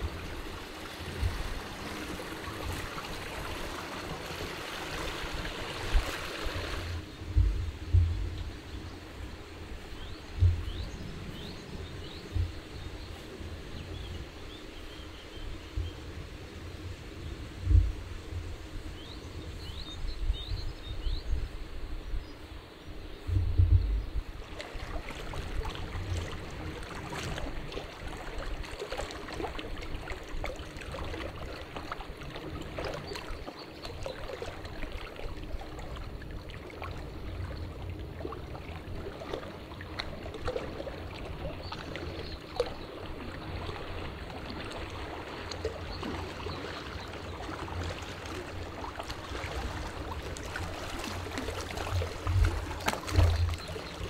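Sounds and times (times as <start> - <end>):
wind buffeting microphone: 0.0 - 14.6, 23.2 - 33.2
small waves lapping on stones: 39.0 - 54.0.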